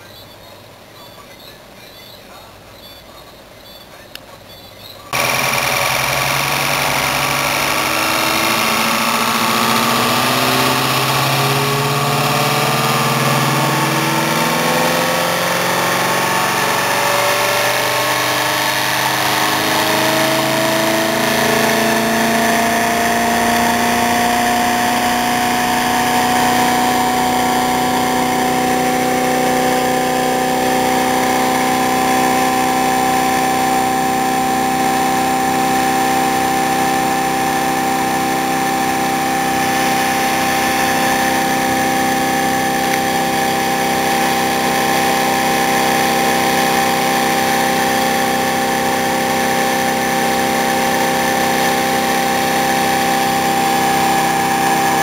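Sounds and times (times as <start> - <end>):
motor whining: 5.1 - 55.0.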